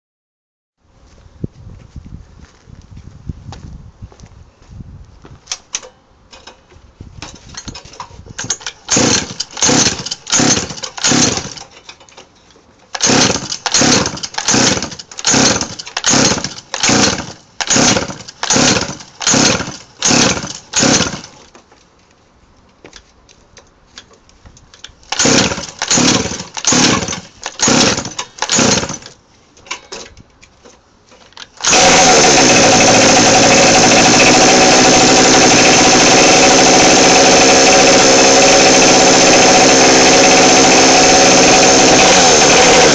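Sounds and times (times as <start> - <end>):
recoil starter cranking: 8.4 - 11.7, 12.9 - 21.4, 25.1 - 29.1, 31.4 - 42.9
small engine buzzing: 8.9 - 11.6, 13.0 - 21.3, 25.1 - 29.0, 31.6 - 42.9.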